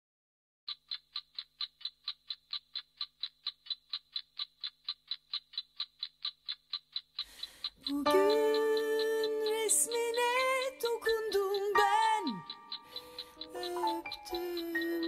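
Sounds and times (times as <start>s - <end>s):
fast clock-like ticking: 0.7s - 15.0s
music with held notes: 7.9s - 15.0s.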